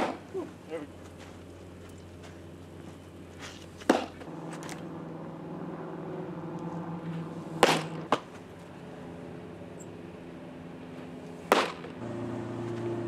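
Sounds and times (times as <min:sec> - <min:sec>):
baseball smacking into mitt: 0:03.8 - 0:04.3, 0:07.6 - 0:08.4, 0:11.5 - 0:12.0.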